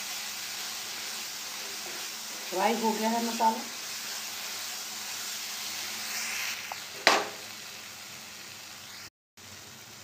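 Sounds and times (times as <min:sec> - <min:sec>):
masala sizzling in a pan: 0:00.0 - 0:10.0
sharp knock: 0:07.0 - 0:07.4.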